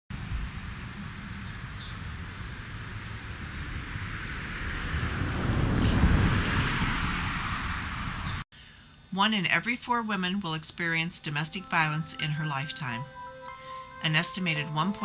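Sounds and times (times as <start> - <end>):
vehicle passing by: 2.7 - 8.4.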